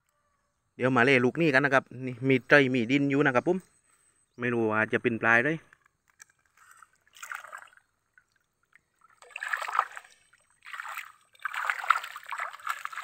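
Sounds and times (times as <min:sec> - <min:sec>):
water splashing and streaming: 0:06.5 - 0:13.0.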